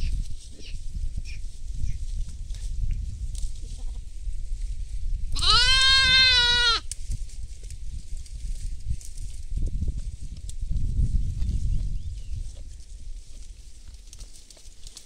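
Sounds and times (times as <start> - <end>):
young goat bleating: 5.3 - 6.8.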